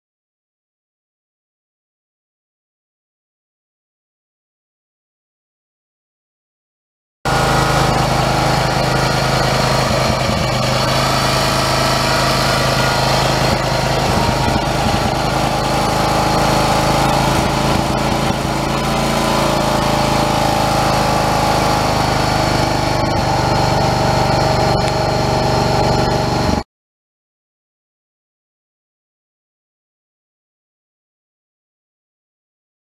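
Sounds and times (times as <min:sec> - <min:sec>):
lawn tractor engine running: 0:07.3 - 0:26.6.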